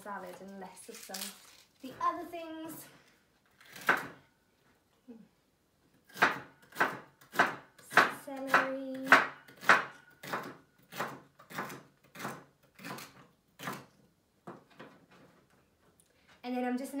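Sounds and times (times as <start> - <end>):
knife chopping on board: 6.1 - 13.0.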